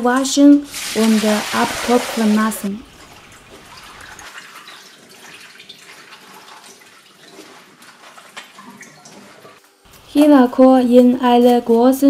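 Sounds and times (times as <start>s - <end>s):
water dripping: 0.7s - 9.6s.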